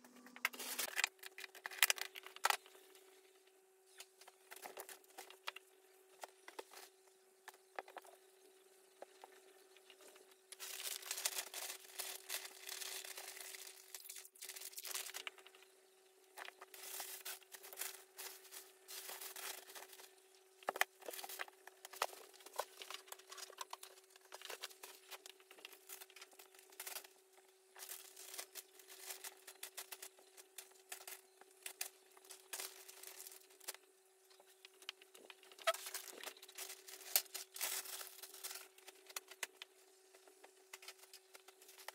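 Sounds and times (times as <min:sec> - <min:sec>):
faint steady hum: 0:00.0 - 0:41.9
packaging crinkling: 0:00.4 - 0:02.7, 0:10.5 - 0:15.6, 0:16.4 - 0:27.1, 0:27.8 - 0:33.8, 0:34.6 - 0:41.9.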